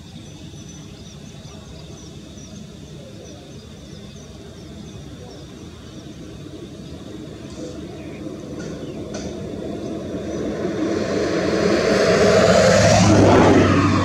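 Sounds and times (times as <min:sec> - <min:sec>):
small birds chirping: 0:00.0 - 0:10.9
low rumble: 0:08.2 - 0:14.0.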